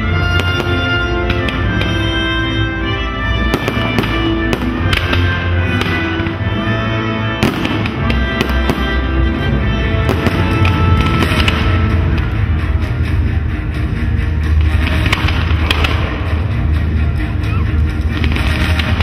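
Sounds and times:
fireworks bursting: 0:00.0 - 0:02.7, 0:03.3 - 0:12.6, 0:14.5 - 0:16.5, 0:18.0 - 0:19.0
music with long held notes: 0:00.0 - 0:19.0.

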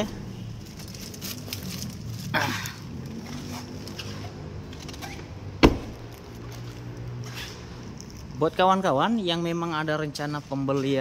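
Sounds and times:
car door shutting: 0:04.9 - 0:06.2
rustling scrape: 0:06.6 - 0:08.4.

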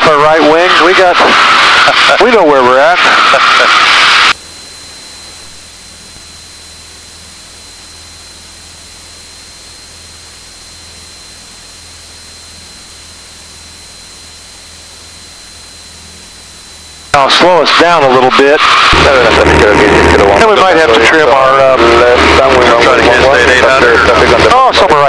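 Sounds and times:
thin high whine: 0:00.0 - 0:25.0
intercom hiss: 0:05.0 - 0:25.0.

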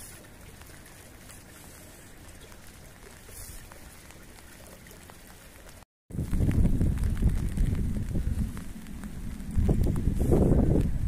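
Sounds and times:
light rain hiss: 0:00.0 - 0:11.0
water drip ticks: 0:00.0 - 0:11.0
wind rumble on microphone: 0:06.1 - 0:11.0.

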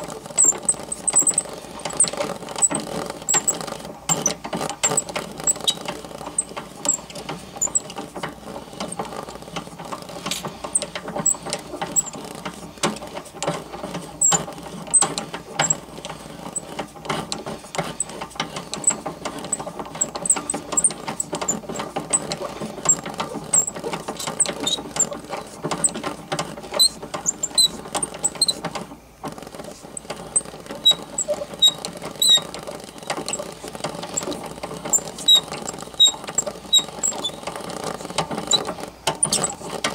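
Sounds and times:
crank gears whirring: 0:00.0 - 0:39.9
short high squeaks: 0:24.4 - 0:25.2, 0:30.0 - 0:33.1, 0:34.1 - 0:37.5.

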